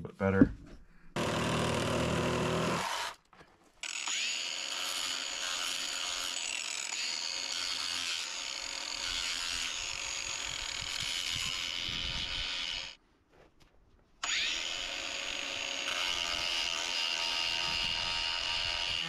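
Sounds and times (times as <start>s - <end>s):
angle grinder sanding wood: 3.9s - 13.0s.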